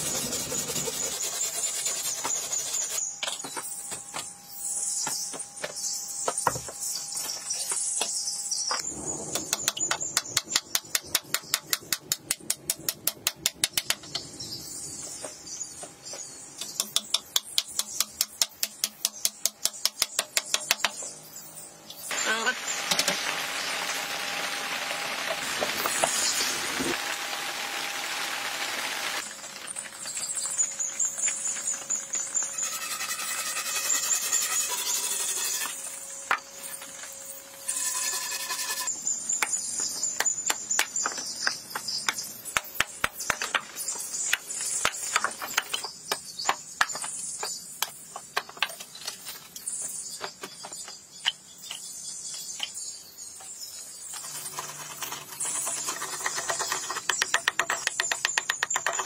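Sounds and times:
tool scraping wood: 0.0 - 3.6, 32.4 - 39.0, 54.0 - 59.0
sharp taps and knocks: 5.0 - 6.9, 7.7 - 14.3, 15.1 - 21.1, 39.4 - 48.9, 55.6 - 59.0
high-pitched squeaks: 32.4 - 36.0, 37.5 - 39.0.

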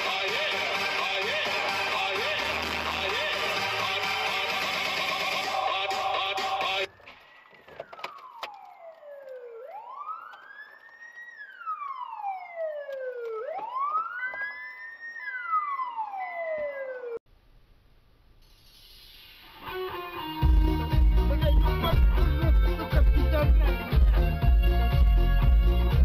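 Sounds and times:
police siren wailing: 0.0 - 17.2.

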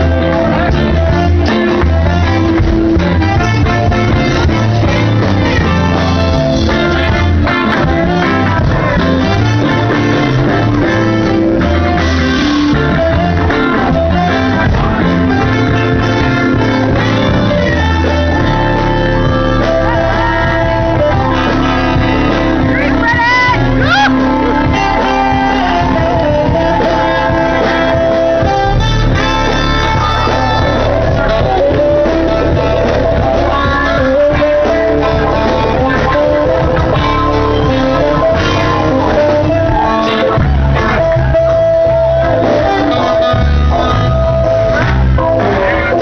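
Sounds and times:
guitar: 0.0 - 46.0
live band playing: 0.0 - 46.0
person singing: 0.0 - 46.0
crowd shouting: 13.8 - 43.3.

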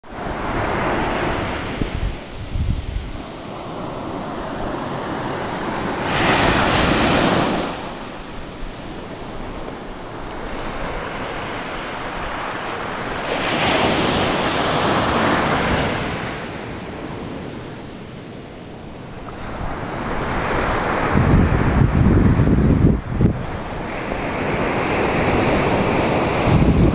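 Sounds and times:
wind buffeting microphone: 0.0 - 16.2, 19.3 - 26.9
surf breaking on beach: 0.0 - 16.6.

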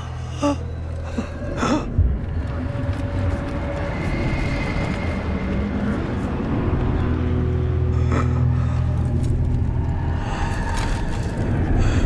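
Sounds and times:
deep rumble: 0.0 - 12.0.

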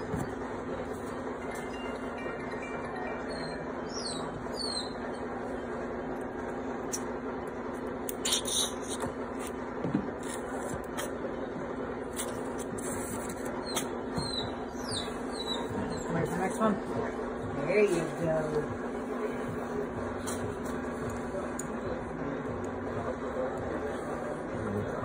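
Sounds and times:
steady hum: 0.0 - 25.0
puppies squeaking: 3.0 - 5.3, 13.6 - 16.7.

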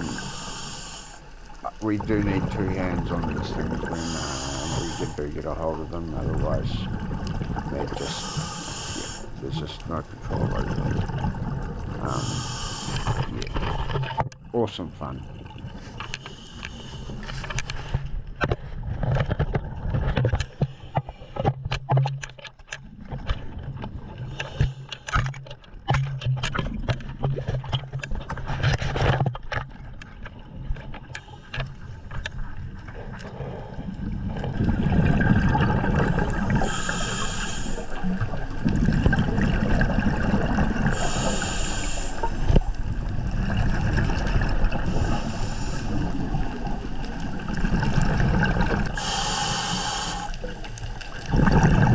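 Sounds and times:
water rushing: 0.0 - 0.7, 1.6 - 16.2, 34.1 - 51.9
diver breathing: 0.0 - 1.4, 3.6 - 5.5, 7.9 - 9.8, 11.9 - 13.9, 15.7 - 18.1, 36.3 - 38.1, 40.8 - 42.6, 44.8 - 46.4, 48.8 - 50.7.

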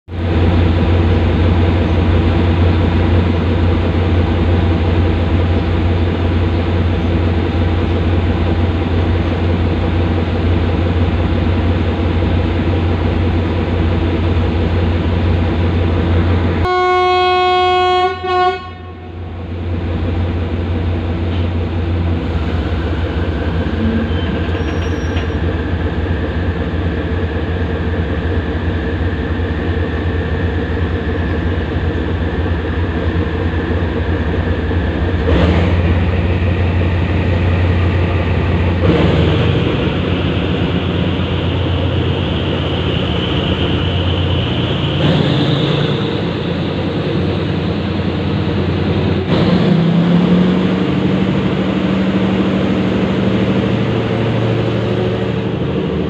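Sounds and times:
diesel locomotive engine drone: 0.1 - 56.0
locomotive horn blast: 16.6 - 19.3.

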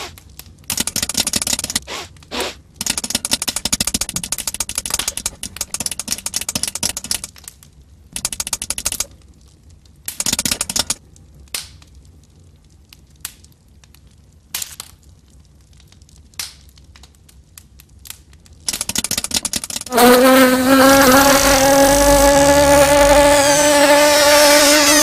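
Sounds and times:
sharp clicks: 0.7 - 1.9, 2.8 - 7.4, 8.2 - 9.1, 10.1 - 11.0, 18.7 - 19.9
fast dense crackling buzz: 8.2 - 9.1, 10.2 - 11.0, 18.7 - 25.0.

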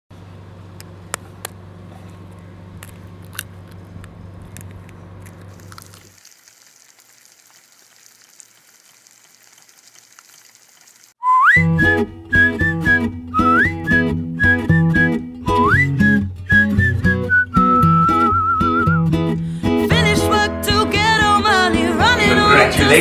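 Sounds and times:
egg shell cracking: 2.8 - 11.2
egg sizzling: 5.2 - 11.2.

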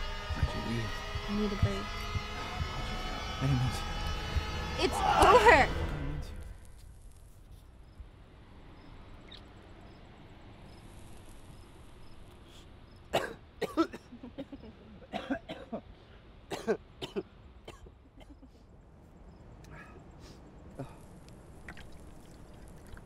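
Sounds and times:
man coughing: 13.2 - 15.8, 16.5 - 18.5.

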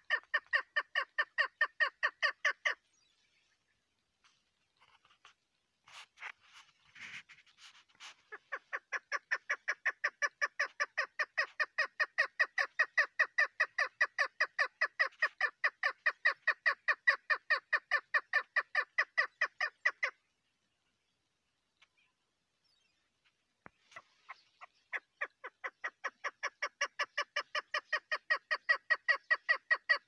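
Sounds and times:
partridge calling: 0.0 - 3.1, 5.9 - 20.2, 23.6 - 30.0.

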